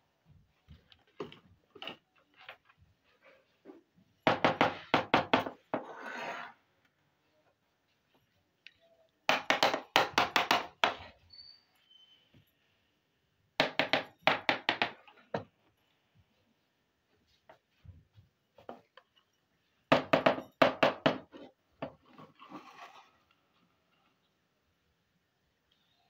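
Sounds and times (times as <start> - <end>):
scraping rustle: 22.1 - 23.7.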